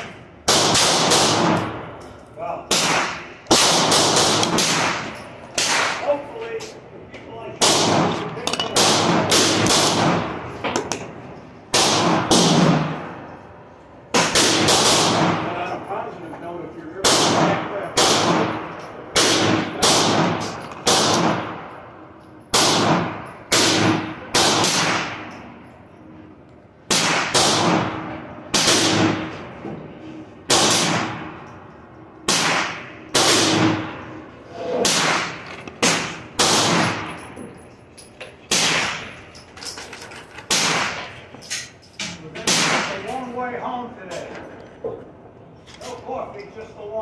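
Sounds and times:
gunshots ringing under roof: 0:00.0 - 0:02.0, 0:02.7 - 0:06.2, 0:07.6 - 0:10.8, 0:11.7 - 0:13.2, 0:14.1 - 0:15.7, 0:17.0 - 0:21.9, 0:22.5 - 0:25.5, 0:26.9 - 0:29.6, 0:30.4 - 0:31.4, 0:32.2 - 0:37.2, 0:38.4 - 0:39.2, 0:40.5 - 0:41.2, 0:42.4 - 0:43.2.

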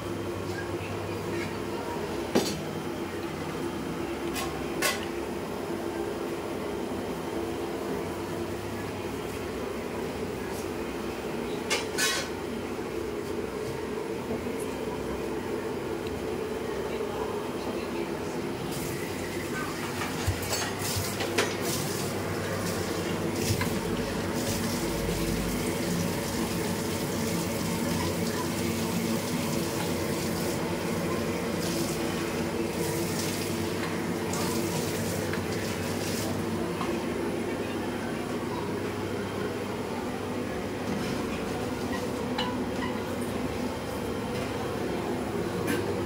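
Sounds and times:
exhaust fan humming: 0:12.4 - 0:46.0.

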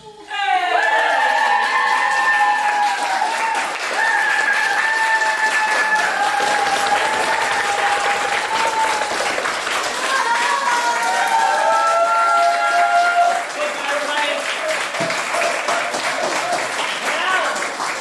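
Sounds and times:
high-pitched whoops of cheering: 0:00.2 - 0:09.4, 0:10.0 - 0:13.5
audience applauding: 0:00.6 - 0:18.0.

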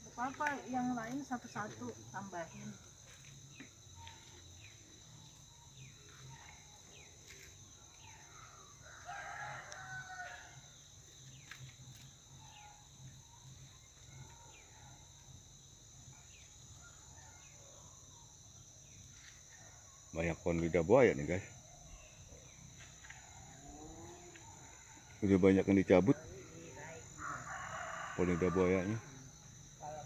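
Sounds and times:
crickets chirring: 0:00.0 - 0:30.0
rooster crowing: 0:08.1 - 0:10.7, 0:26.7 - 0:29.4.

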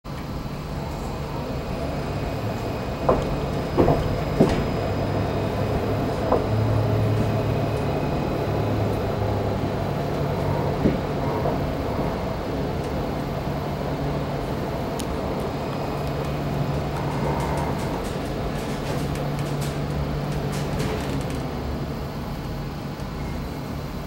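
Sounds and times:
tram cabin hum: 0:00.0 - 0:24.0
short clunks: 0:03.0 - 0:06.8.

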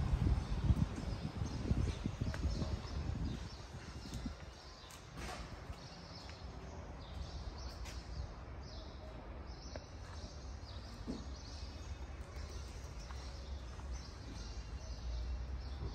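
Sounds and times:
low rumble: 0:00.0 - 0:03.5.

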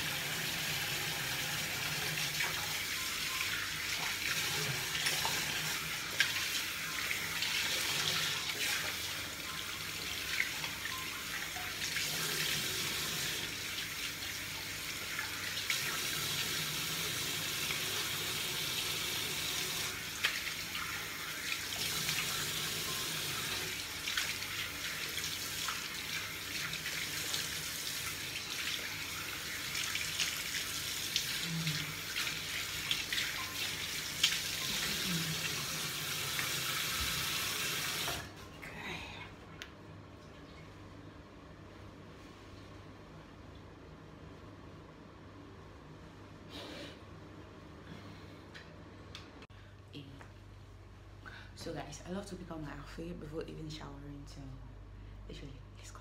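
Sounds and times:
tap water running into sink: 0:00.0 - 0:38.3
water splashes from face washing: 0:19.2 - 0:38.3.

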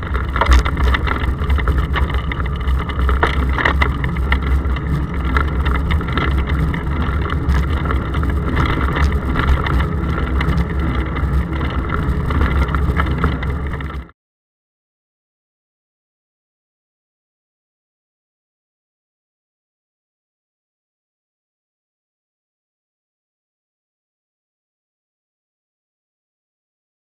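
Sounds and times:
bicycle clicks and rattles: 0:00.0 - 0:14.1
road vibration rumble: 0:00.0 - 0:14.1
wind: 0:00.0 - 0:14.1.

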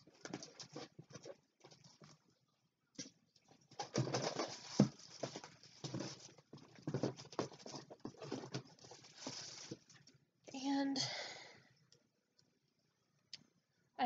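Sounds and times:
rummaging in cardboard box: 0:03.6 - 0:10.1.

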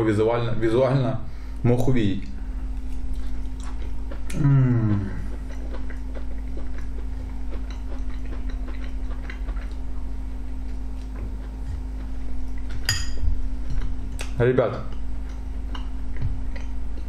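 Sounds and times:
low room hum: 0:00.0 - 0:17.0
man chewing: 0:02.3 - 0:17.0
man humming briefly: 0:04.3 - 0:05.2.

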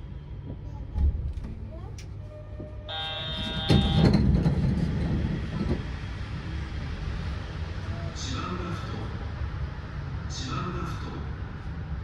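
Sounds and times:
train rumble and running hum: 0:00.0 - 0:12.0.

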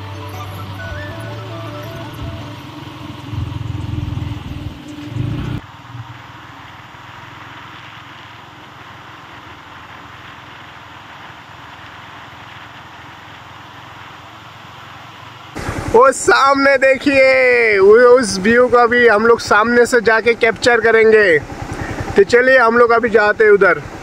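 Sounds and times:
low hum: 0:00.0 - 0:06.8
distant waterfall rushing: 0:00.0 - 0:24.0.

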